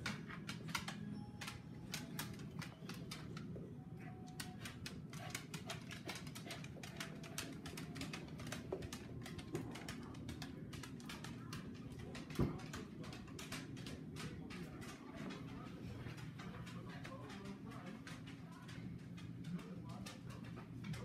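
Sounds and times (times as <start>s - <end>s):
dog claws clicking on wood floor: 0.0s - 3.6s, 4.3s - 21.0s
low steady hum: 0.0s - 21.0s.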